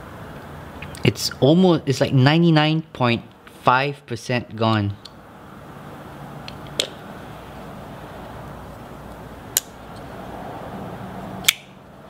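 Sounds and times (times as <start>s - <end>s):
steady background hiss: 0.0s - 12.0s
sharp metal clicks: 11.4s - 11.8s.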